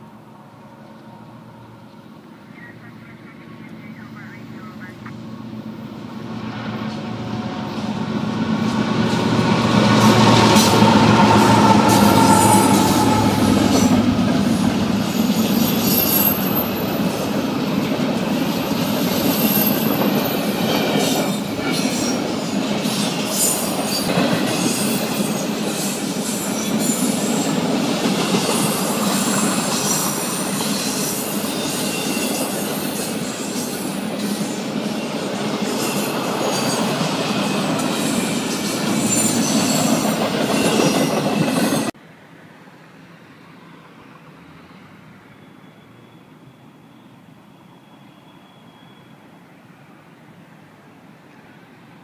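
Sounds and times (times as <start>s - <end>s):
diesel locomotive engines: 0.0s - 42.0s
wheels rumbling on rail: 0.0s - 42.0s
high wheel squeals: 9.1s - 16.9s, 45.2s - 49.3s.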